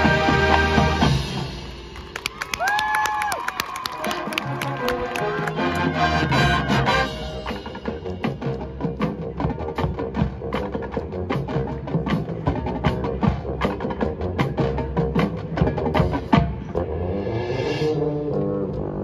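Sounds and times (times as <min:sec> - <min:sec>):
marching percussion playing: 0:00.0 - 0:03.0, 0:04.0 - 0:18.1.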